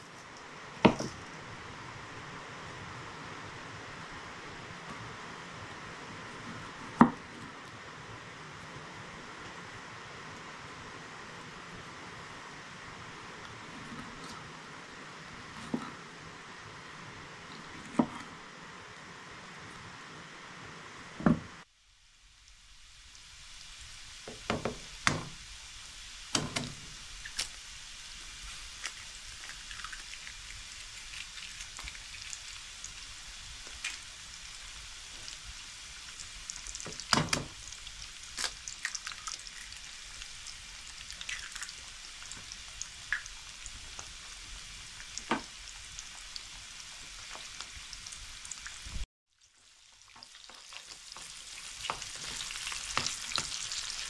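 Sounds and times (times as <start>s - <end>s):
food sizzling in a pan: 22.0s - 54.0s.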